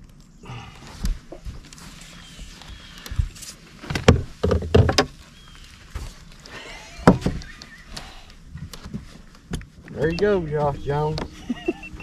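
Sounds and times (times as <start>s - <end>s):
knocks and thumps on boat deck: 3.9s - 5.1s, 7.0s - 7.5s.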